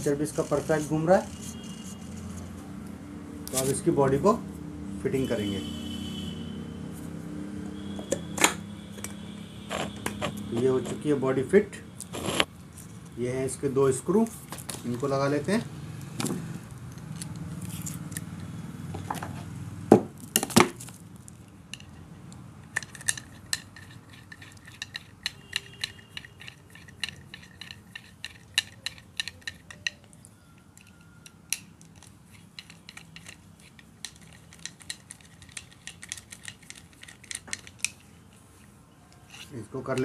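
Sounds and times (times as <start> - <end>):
screwdriver clinking on metal: 22.7 - 30.1.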